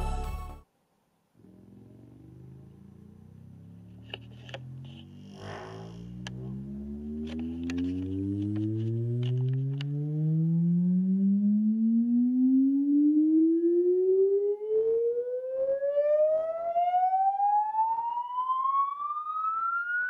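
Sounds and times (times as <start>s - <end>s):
rising sine-wave sweep tone: 2.0s - 20.0s.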